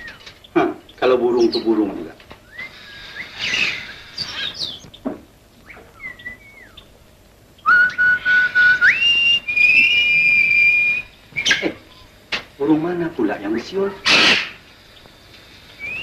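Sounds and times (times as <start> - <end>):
woman whistling a sliding call: 7.7 - 12.1, 15.8 - 16.0.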